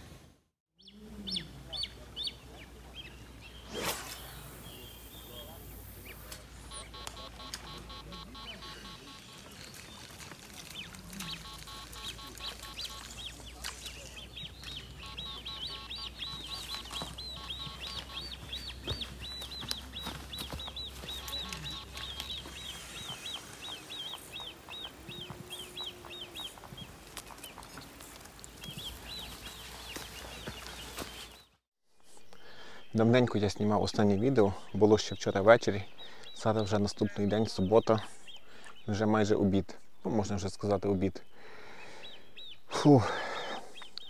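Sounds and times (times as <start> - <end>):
small bird chirping: 0.8 - 32.9.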